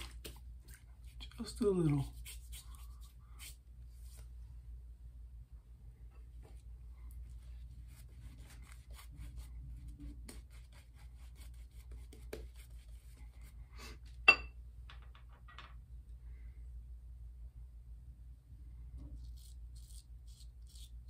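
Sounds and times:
shaving brush strokes: 0.0s - 4.3s, 19.1s - 21.0s
low steady hum: 0.0s - 21.0s
sharp ringing clink: 14.3s - 14.6s.

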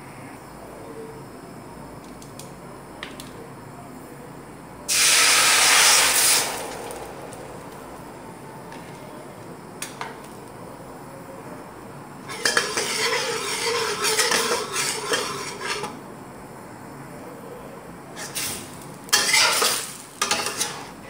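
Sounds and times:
sauce sizzling in hot wok: 4.9s - 9.0s, 12.2s - 16.0s, 18.2s - 21.0s.

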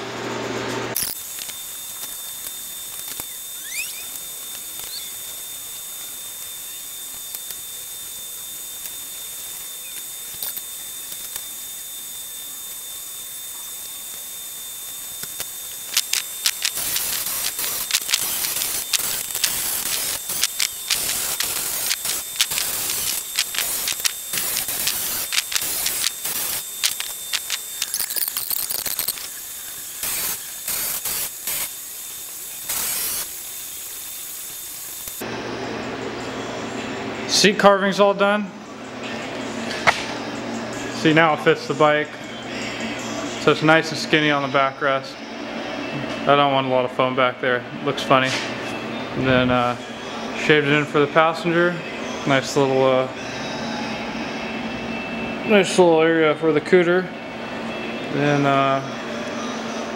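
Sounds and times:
power tool grinding foam: 1.0s - 35.2s.

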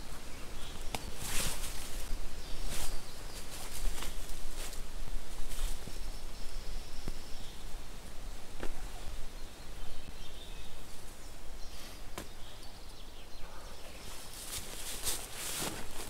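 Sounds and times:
groundcloth rustling on dry leaves: 0.0s - 6.0s, 14.0s - 16.0s
faint bird chirps: 8.6s - 14.4s.

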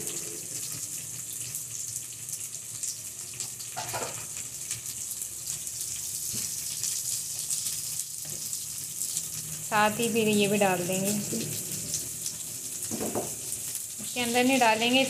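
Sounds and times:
onions sizzling in a pan: 0.0s - 15.0s.

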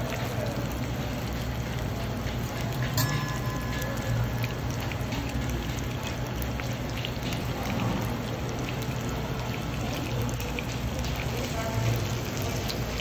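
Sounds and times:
fish sizzling in hot oil: 0.0s - 13.0s
low steady hum: 2.6s - 8.3s.

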